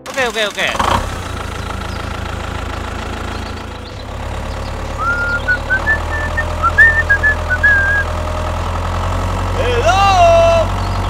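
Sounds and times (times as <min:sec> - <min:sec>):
small tractor engine running: 0:00.0 - 0:11.0
short high chirping notes: 0:03.6 - 0:08.1.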